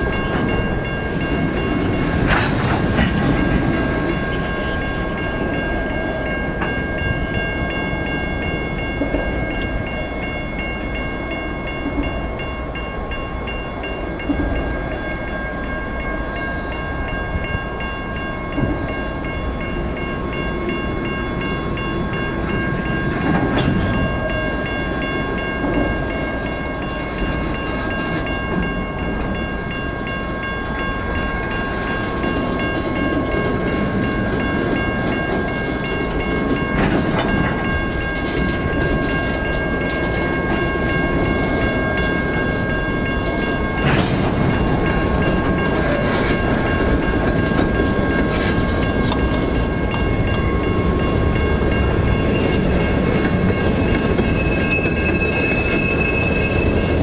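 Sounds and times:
freight train wheels clattering: 0.0s - 57.0s
high steady squeal: 53.5s - 57.0s.

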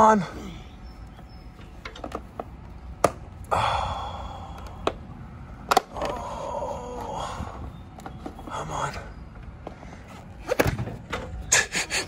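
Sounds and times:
breathy exhales: 3.4s - 5.1s, 5.9s - 7.8s.

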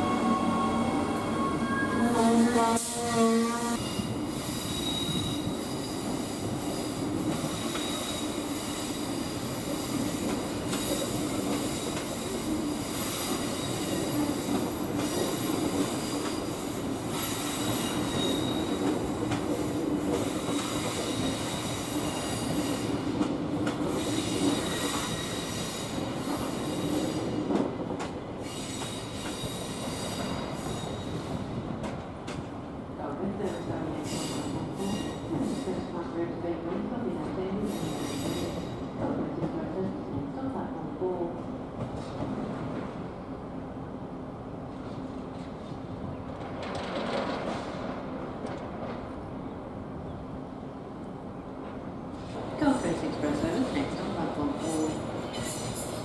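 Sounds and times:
train wheels squealing: 0.0s - 2.2s, 3.8s - 19.1s, 20.5s - 23.0s, 23.9s - 27.4s, 28.4s - 31.6s, 34.0s - 35.8s, 37.6s - 38.8s, 54.6s - 56.0s
train rumble: 0.0s - 56.0s.

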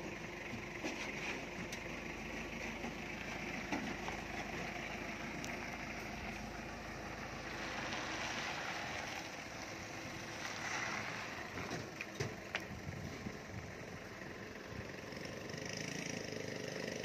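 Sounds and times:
truck engine idling: 0.0s - 17.0s
wind noise on microphone: 12.7s - 13.7s.

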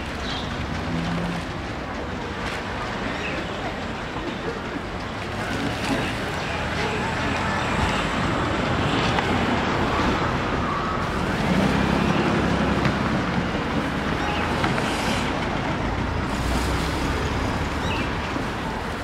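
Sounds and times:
steady hum of city traffic: 0.0s - 19.0s
vehicles passing rumble: 0.0s - 19.0s.

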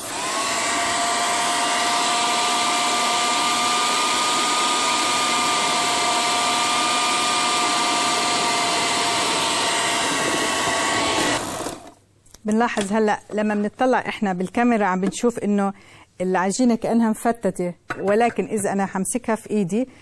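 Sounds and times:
food processor motor whining: 0.0s - 12.0s.

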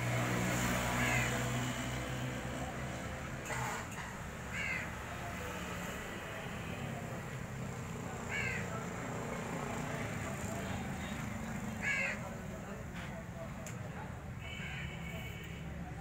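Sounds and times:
steady background noise: 0.0s - 16.0s
crow cawing: 0.9s - 1.5s, 4.5s - 5.0s, 8.2s - 8.9s, 11.8s - 12.4s.

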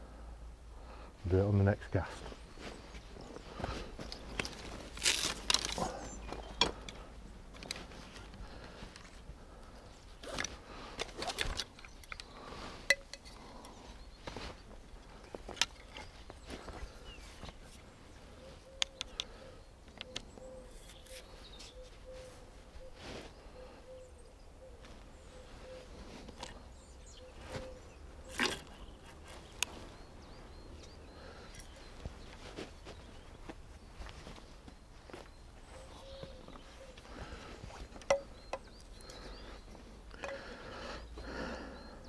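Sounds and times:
handling clicks and rustles: 10.1s - 17.9s, 30.7s - 39.3s
faint bird chirps: 13.4s - 42.0s.

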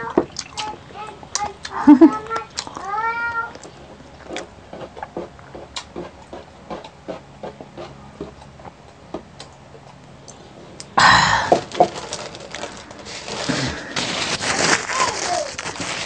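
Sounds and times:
mouth chewing and gulping: 0.0s - 2.9s, 3.5s - 11.0s.

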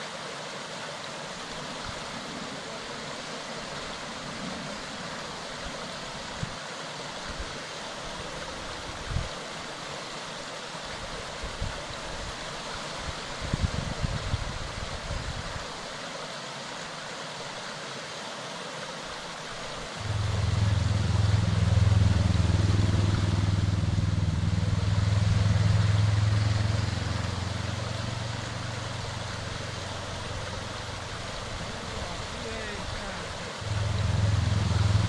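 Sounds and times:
mountain stream rushing: 0.0s - 35.0s
low motor hum: 20.0s - 32.0s, 33.6s - 35.0s.

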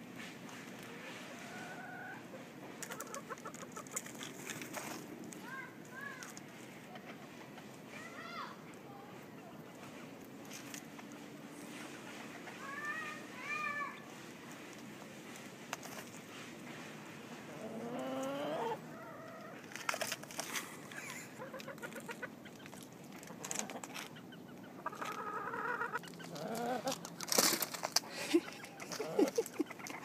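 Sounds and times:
chickens clucking: 0.4s - 5.0s, 6.4s - 7.9s, 8.6s - 30.0s
drawn-out hen calls: 0.8s - 4.3s, 17.4s - 30.0s.

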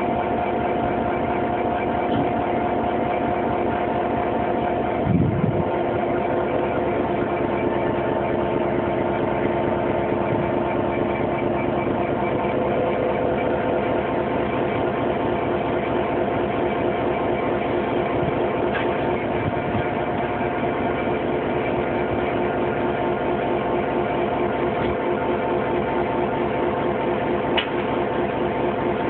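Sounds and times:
diesel locomotive engine droning: 0.0s - 29.0s
brief low rumble: 5.0s - 5.7s.

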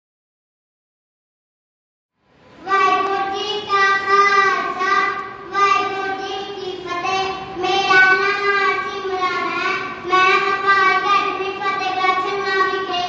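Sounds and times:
child singing: 2.6s - 13.0s.

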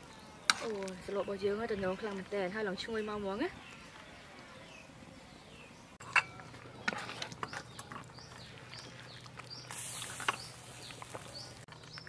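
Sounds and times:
small birds chirping: 0.0s - 12.0s
metal ladle clinking on pot: 6.0s - 7.1s.

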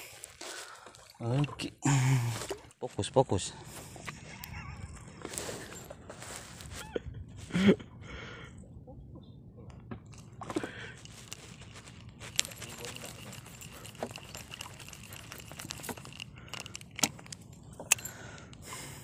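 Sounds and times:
fishing reel and jig clicking: 10.2s - 18.8s.

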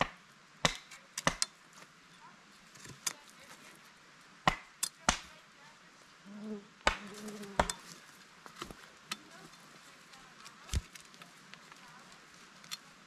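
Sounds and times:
blade chopping wooden pole: 0.0s - 1.5s, 4.5s - 5.3s, 6.8s - 7.8s
low voice murmur: 6.2s - 7.7s.

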